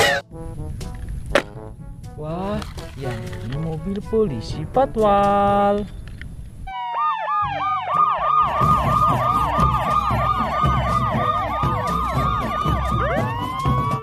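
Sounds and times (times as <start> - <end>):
police sirens wailing: 6.7 - 14.0.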